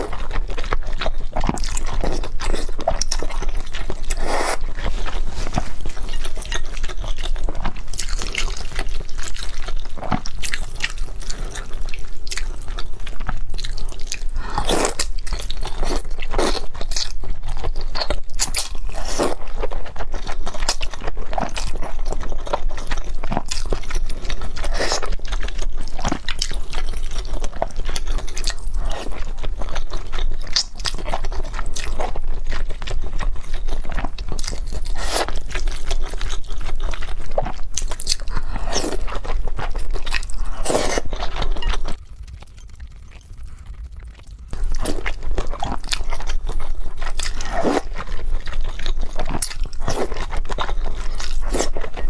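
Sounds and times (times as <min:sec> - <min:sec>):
wet chewing: 0:00.0 - 0:52.0
person slurping noodles: 0:04.1 - 0:04.6.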